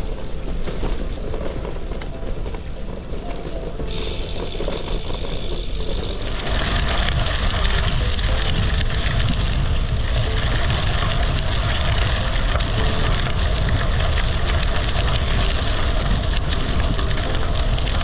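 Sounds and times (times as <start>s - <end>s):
bicycle tyres crunching on gravel: 0.0s - 18.0s
deep rumble: 0.0s - 18.0s
small stone ticks: 3.8s - 18.0s
wind rush on microphone: 4.0s - 18.0s.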